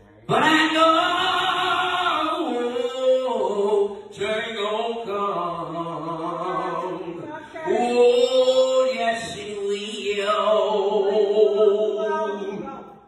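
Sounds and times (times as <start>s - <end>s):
man singing solo: 0.3s - 13.0s.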